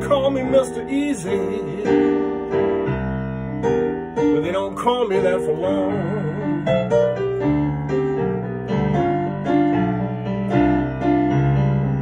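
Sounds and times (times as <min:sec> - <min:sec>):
person singing: 0:00.0 - 0:02.4, 0:04.3 - 0:07.2
digital piano playing blues: 0:00.0 - 0:12.0.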